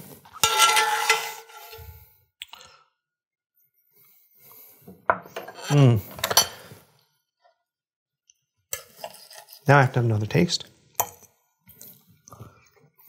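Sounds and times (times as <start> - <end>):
metal spoon scraping a skillet: 0.0 - 2.0, 5.3 - 6.8, 8.8 - 9.7.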